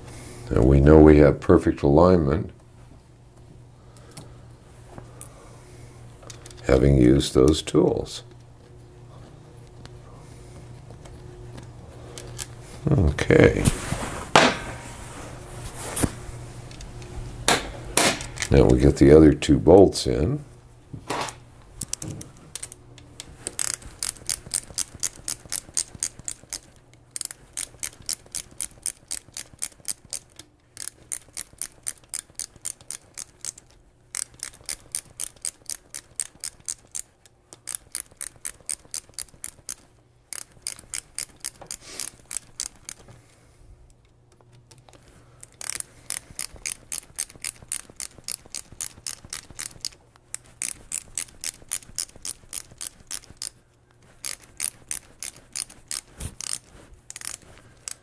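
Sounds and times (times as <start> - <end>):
ratchet clicking: 23.4 - 43.0, 44.7 - 53.6, 54.2 - 58.0.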